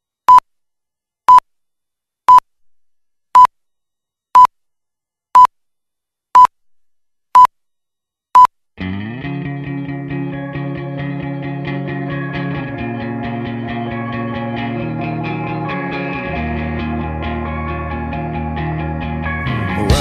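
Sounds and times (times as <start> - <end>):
music: 8.8 - 20.0.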